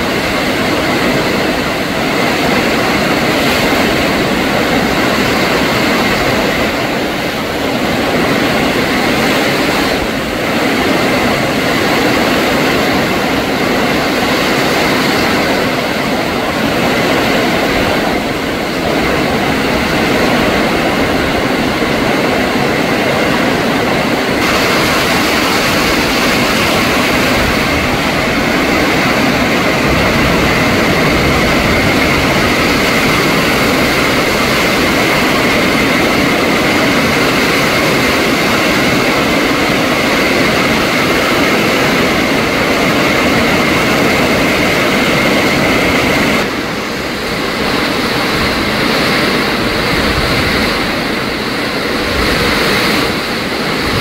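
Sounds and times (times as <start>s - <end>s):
storm wind gusting through trees: 0.0s - 54.0s
heavy rain on foliage: 24.4s - 39.7s.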